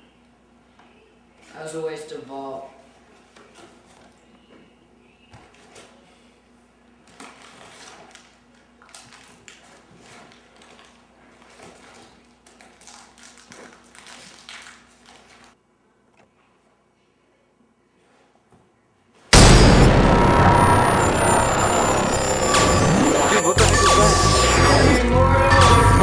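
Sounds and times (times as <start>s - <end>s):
wrapper crinkling and tearing: 12.4s - 15.5s.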